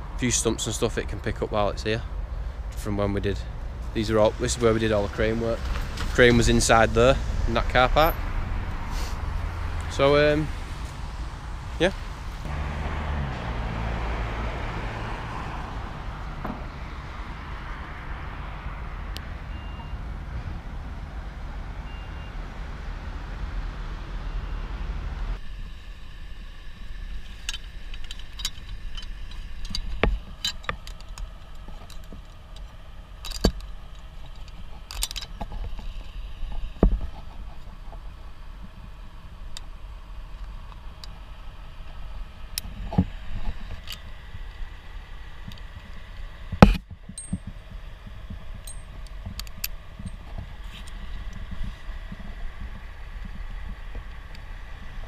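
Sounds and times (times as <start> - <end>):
road traffic rumble: 0.0 - 55.0
climbing hardware clicking: 27.2 - 38.0, 45.5 - 54.5.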